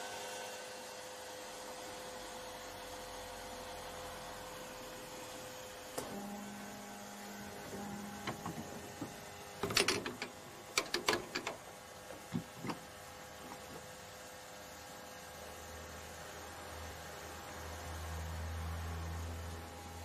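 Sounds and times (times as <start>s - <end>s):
low mechanical whir: 0.1s - 20.0s
mechanism clicks and knocks: 7.6s - 13.9s.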